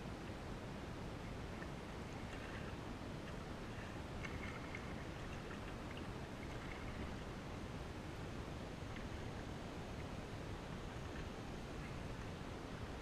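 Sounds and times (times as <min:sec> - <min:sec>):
steady low rumble: 0:00.0 - 0:13.0
small splashes and drips: 0:01.5 - 0:07.4
paddle dipping into water: 0:01.6 - 0:07.3.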